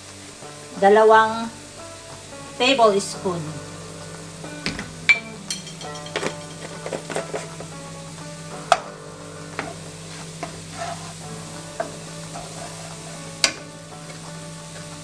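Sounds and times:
garlic and onion sizzling: 0.0 - 15.0
spatula knocking on pan: 4.6 - 7.8, 8.6 - 9.8.

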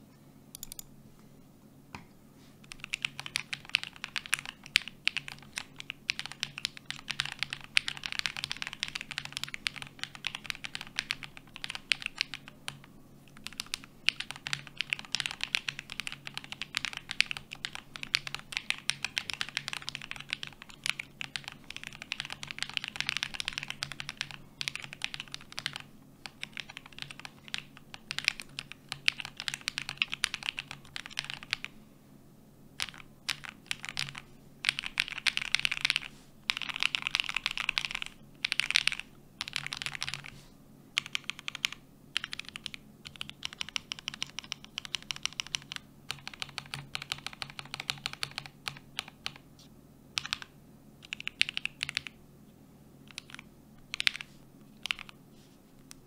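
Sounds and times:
mechanical keyboard typing: 0.6 - 0.9, 2.7 - 31.7, 32.8 - 40.3, 41.0 - 49.4, 50.2 - 52.2, 53.1 - 55.2.

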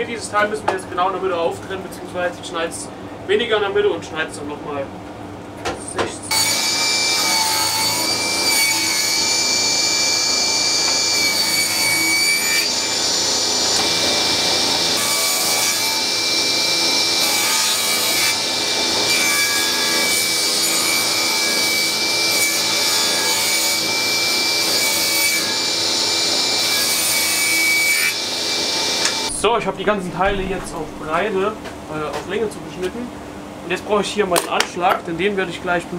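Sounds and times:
table saw cutting wood: 6.3 - 31.3.

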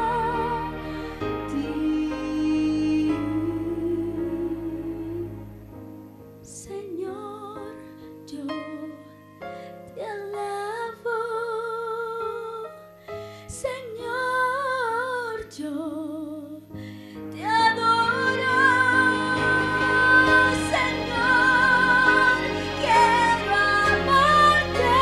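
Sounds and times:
woman singing: 0.0 - 5.4, 6.4 - 9.2, 9.9 - 12.8, 13.5 - 16.7, 17.3 - 25.0
instrumental accompaniment: 17.8 - 25.0.

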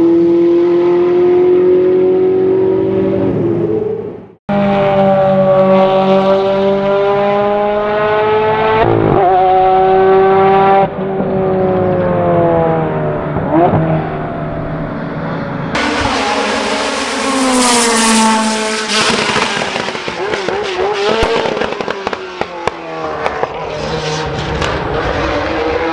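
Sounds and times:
racing engine at high revs: 0.0 - 25.9
engine slowing down: 14.1 - 25.9.

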